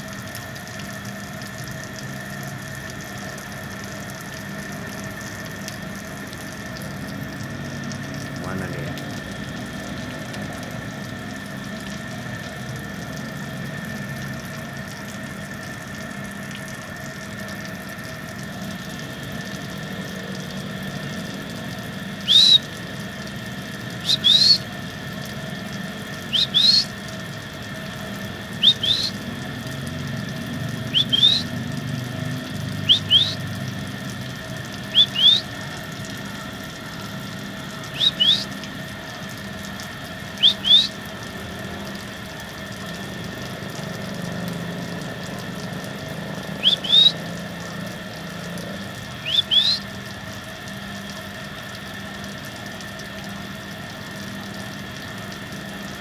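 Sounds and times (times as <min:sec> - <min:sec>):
faint constant hum: 0:00.0 - 0:56.0
high rising whistles: 0:22.2 - 0:22.6, 0:24.0 - 0:24.6, 0:26.3 - 0:26.9, 0:28.6 - 0:29.2, 0:30.9 - 0:31.5, 0:32.8 - 0:33.4, 0:34.9 - 0:35.5, 0:37.9 - 0:38.5, 0:40.4 - 0:40.9, 0:46.6 - 0:47.2, 0:49.2 - 0:49.8.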